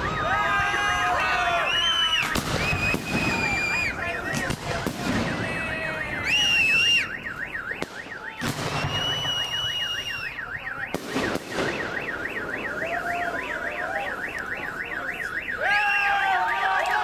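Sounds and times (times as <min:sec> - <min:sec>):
car alarm siren wailing: 0:00.0 - 0:17.0
firework bangs: 0:02.0 - 0:14.2.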